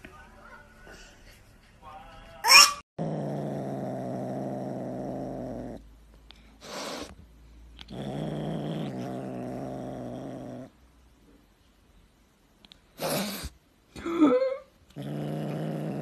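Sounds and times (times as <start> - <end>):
kitten growling: 3.0 - 5.9, 7.8 - 10.8, 14.9 - 16.0.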